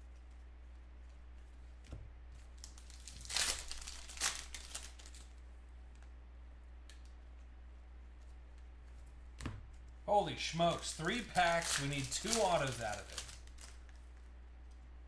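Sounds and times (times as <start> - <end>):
foil wrapper crinkling: 2.4 - 5.4, 10.2 - 14.3.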